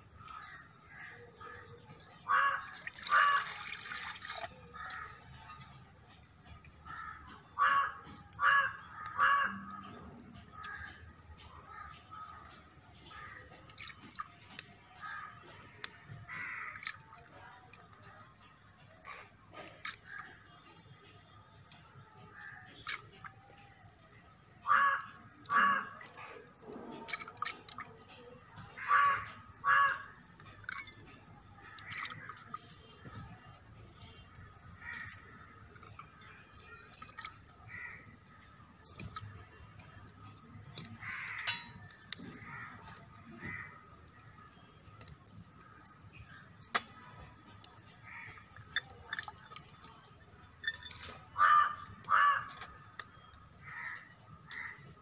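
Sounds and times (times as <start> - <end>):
crows cawing: 0.2 - 4.1, 4.7 - 5.8, 6.8 - 11.9, 16.1 - 17.1, 22.3 - 26.6, 28.3 - 31.0, 34.7 - 38.6, 40.0 - 44.4, 47.2 - 55.0.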